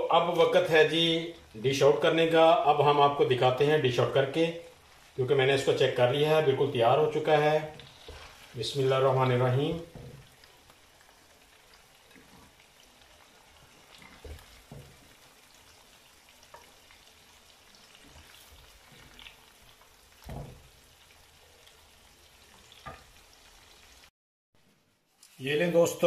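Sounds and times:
faint steady hiss: 0.0s - 26.0s
wooden spoon scraping clay pot: 7.7s - 8.6s.

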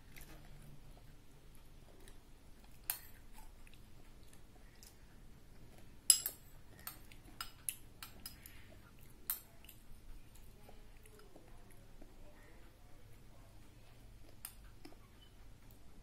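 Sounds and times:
metal spoon clinking on ceramic bowl: 6.1s - 8.4s.

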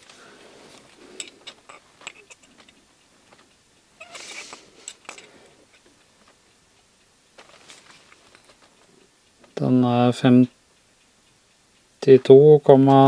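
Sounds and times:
faint clicks and metal taps: 0.0s - 9.6s.

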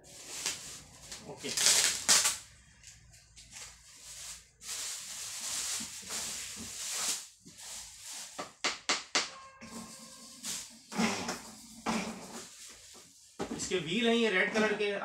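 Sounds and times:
plastic bag rustling and crinkling: 0.0s - 8.4s, 9.7s - 13.4s.

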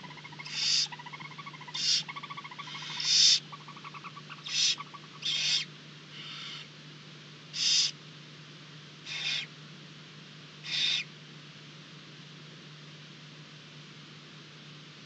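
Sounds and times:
owlets hissing begging calls: 0.0s - 6.7s, 7.6s - 8.0s, 9.1s - 9.5s, 10.6s - 11.1s
faint steady hum: 0.0s - 15.0s.

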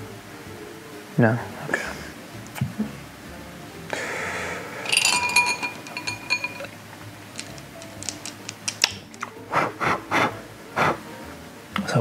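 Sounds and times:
hard puffs of breath: 3.9s - 4.8s
glass bowl clinking and ringing: 4.8s - 6.8s
small clicks and rattles: 4.9s - 9.2s.

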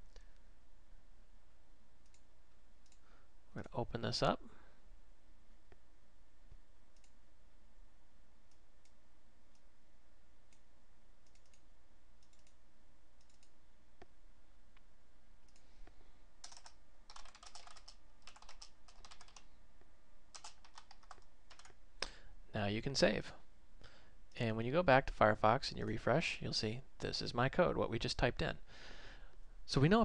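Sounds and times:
faint clicks: 2.0s - 3.1s, 7.0s - 7.2s, 10.5s - 12.6s, 13.2s - 15.7s
typing on computer keyboard: 16.4s - 19.5s, 20.3s - 21.8s.

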